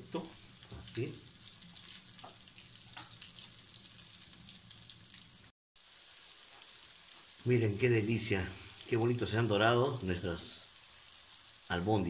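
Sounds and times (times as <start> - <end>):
meatballs sizzling in oil: 0.0 - 12.0.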